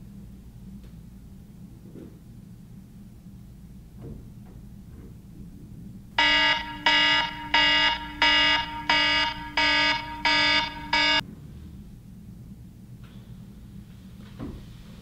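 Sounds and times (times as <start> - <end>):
phone alarm beeping: 6.2 - 11.2.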